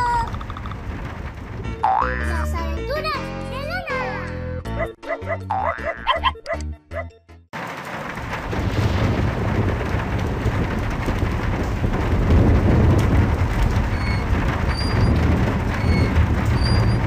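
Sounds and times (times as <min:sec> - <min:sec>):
low rumble of thunder: 0:00.0 - 0:02.0, 0:07.6 - 0:17.0
heavy rain falling: 0:00.0 - 0:02.9, 0:07.6 - 0:17.0.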